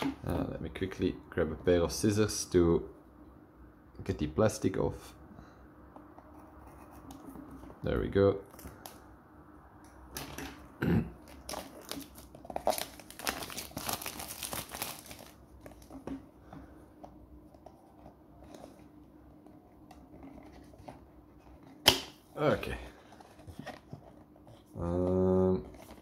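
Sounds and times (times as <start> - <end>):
plastic wrapping crinkling and tearing: 11.2 - 15.9.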